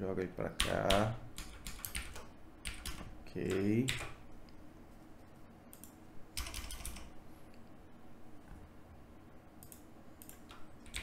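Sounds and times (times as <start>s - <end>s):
keyboard keystrokes: 0.6s - 4.2s, 5.8s - 7.1s, 9.6s - 11.0s.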